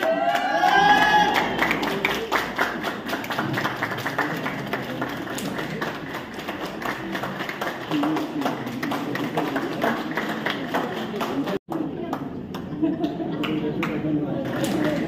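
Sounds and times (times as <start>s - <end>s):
audience clapping: 0.0s - 15.0s
people talking: 7.9s - 15.0s.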